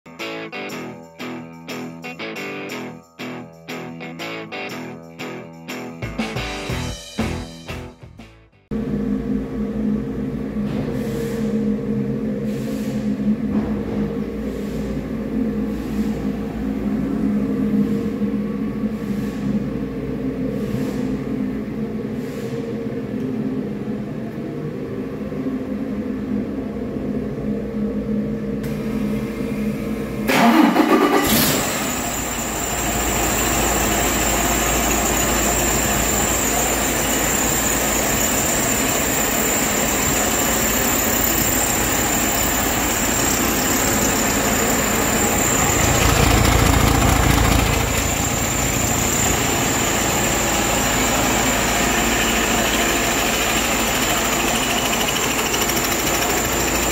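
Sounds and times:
diesel truck engine starting: 0:27.8 - 0:56.9
high whine: 0:31.6 - 0:56.9.

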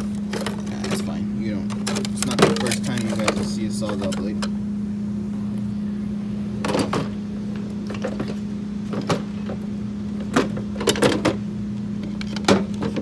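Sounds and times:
steady low hum: 0:00.0 - 0:13.0
tools clinking in metal drawer: 0:01.7 - 0:04.5.

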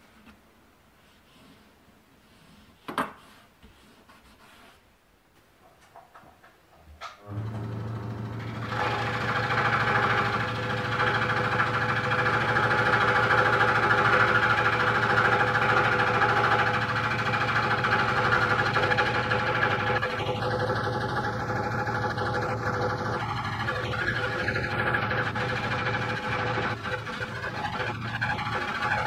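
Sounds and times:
scroll saw motor hum: 0:07.3 - 0:29.0
saw blade rasping through wood: 0:08.7 - 0:29.0.

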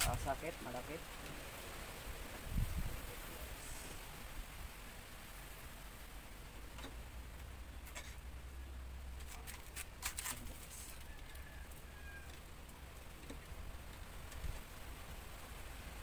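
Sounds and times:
wire clicks and rustles: 0:09.1 - 0:14.7.

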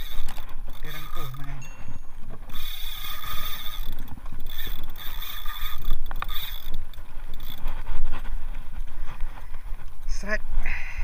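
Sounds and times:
fishing reel drag screaming: 0:00.0 - 0:01.6, 0:02.5 - 0:06.8, 0:07.4 - 0:07.6.

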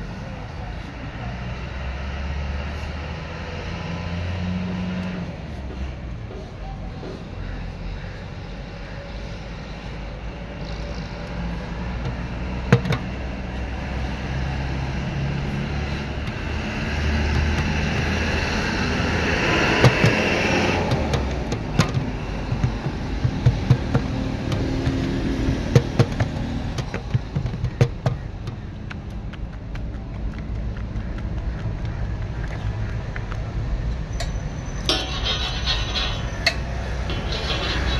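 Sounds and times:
vehicle engine passing: 0:00.0 - 0:29.3, 0:30.3 - 0:37.9
sharp taps and slaps: 0:12.0 - 0:13.2, 0:16.1 - 0:33.4.

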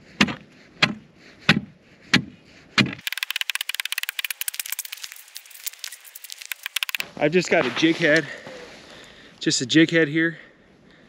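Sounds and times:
high crackling clicks of ice: 0:03.0 - 0:08.3.

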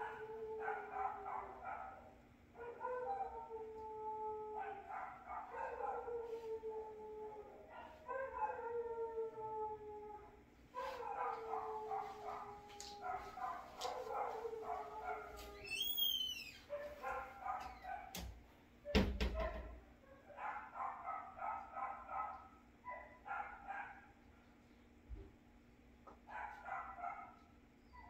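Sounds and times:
dog yelping: 0:13.0 - 0:18.1
dog squealing: 0:15.6 - 0:16.7.

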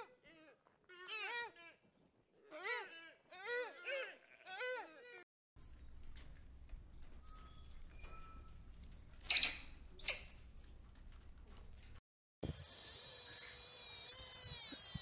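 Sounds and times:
high-pitched animal squeaks: 0:05.6 - 0:06.3, 0:07.0 - 0:10.8, 0:11.4 - 0:12.0
harsh animal squeals: 0:07.2 - 0:08.4, 0:09.2 - 0:10.8.

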